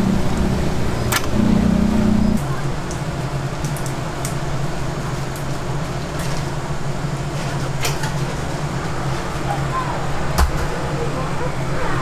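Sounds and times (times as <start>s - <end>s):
kitchen machinery humming: 0.0s - 2.8s.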